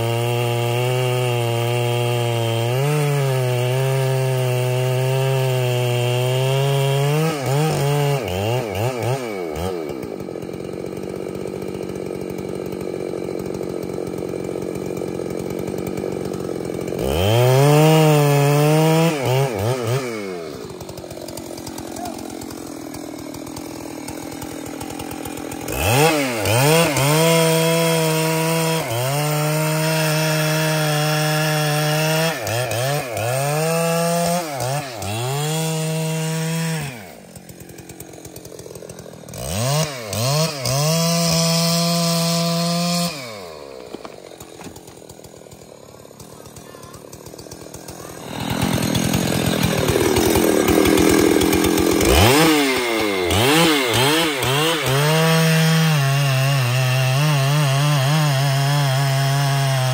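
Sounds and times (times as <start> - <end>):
chainsaw revving: 0.0 - 59.9.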